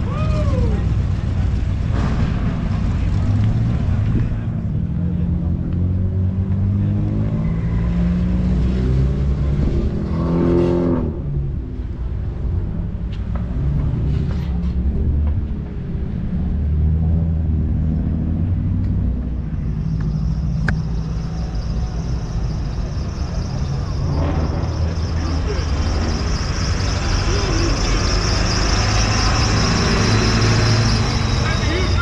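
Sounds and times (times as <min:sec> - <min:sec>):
car engine revving: 0:13.4 - 0:32.0.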